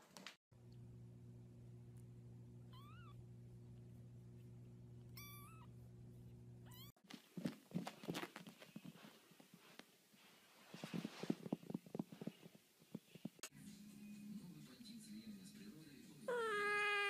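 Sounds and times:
steady low hum: 0.5 - 14.6
soft knocks and rustles: 7.0 - 13.4
kitten mewing: 16.3 - 17.0.

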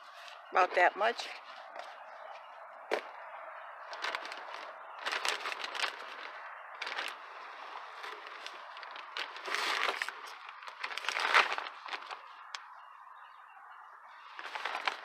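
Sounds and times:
plastic bag crinkling: 3.9 - 12.6, 14.3 - 15.0.

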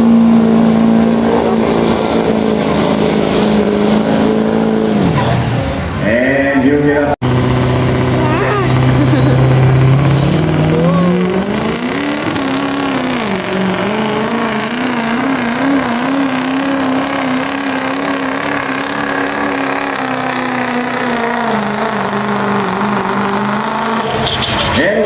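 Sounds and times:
diesel engine revving: 0.0 - 25.0
turbo whistle: 9.8 - 12.5.

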